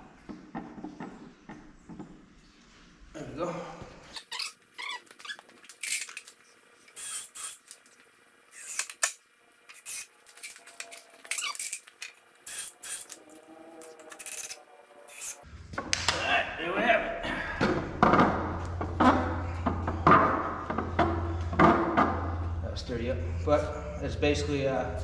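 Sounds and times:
tools and lumber clattering: 0:17.6 - 0:22.4.

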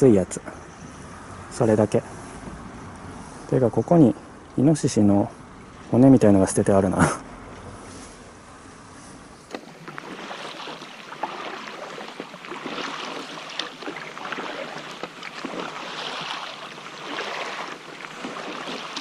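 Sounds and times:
paddle splashing in water: 0:09.5 - 0:19.0.

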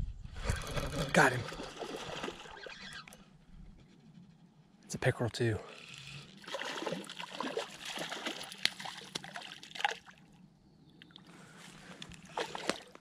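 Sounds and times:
fish splashing and thrashing: 0:00.4 - 0:03.2, 0:06.0 - 0:10.3, 0:11.8 - 0:13.0.

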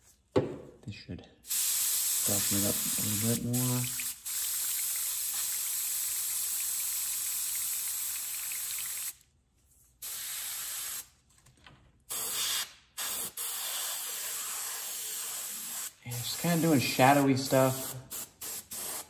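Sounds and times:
airbrush spraying hiss: 0:01.5 - 0:08.2, 0:10.0 - 0:11.1, 0:12.1 - 0:19.0.

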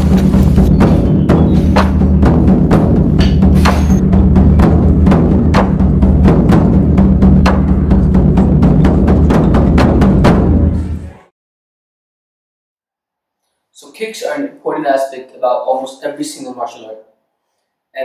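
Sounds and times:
sharp drum hits: 0:00.0 - 0:11.0
steady deep bass: 0:00.0 - 0:11.3.

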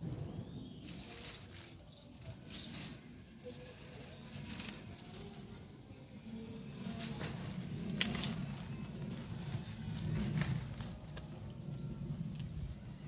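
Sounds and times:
foliage rustling: 0:00.8 - 0:11.2.

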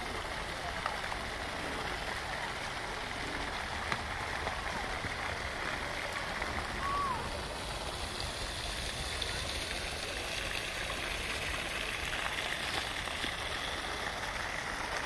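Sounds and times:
fountain water splashing: 0:00.0 - 0:15.0.

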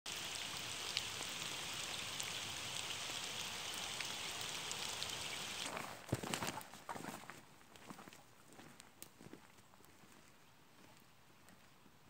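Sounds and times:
rain falling on lake: 0:00.1 - 0:06.6.

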